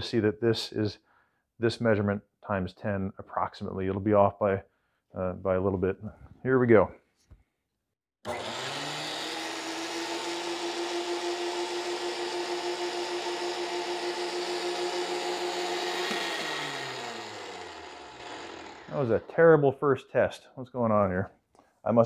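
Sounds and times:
thickness planer running: 8.3s - 19.4s.

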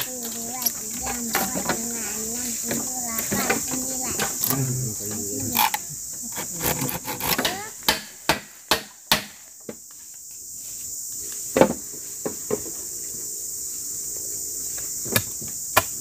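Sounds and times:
insects droning: 0.0s - 16.0s
knocks on bamboo pole: 7.2s - 9.8s, 11.6s - 12.7s.

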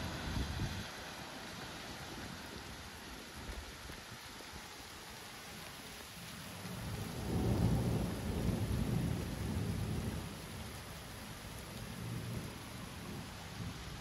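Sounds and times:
rain hiss: 0.0s - 14.0s
thunder rumbling: 6.6s - 10.8s.

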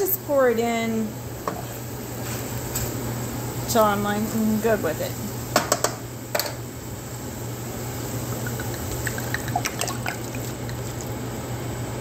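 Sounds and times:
steady low hum: 0.0s - 12.0s
liquid trickling into hot pan: 8.3s - 11.3s.

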